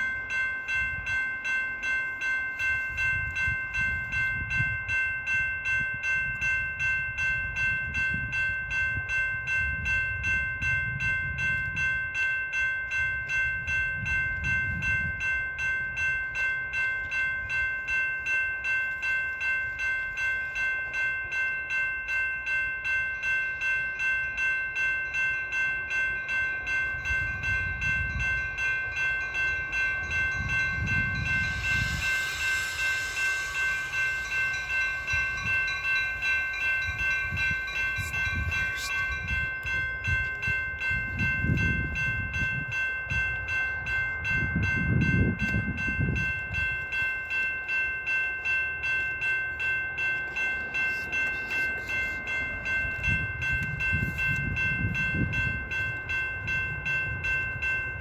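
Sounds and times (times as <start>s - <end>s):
crossing warning bell ringing: 0.0s - 58.0s
low gusting rumble: 26.9s - 47.0s, 50.0s - 58.0s.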